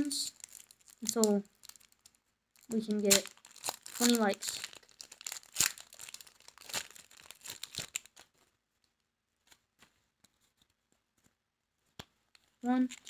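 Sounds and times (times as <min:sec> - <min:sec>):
foil wrapper tearing and crinkling: 0:00.0 - 0:08.3.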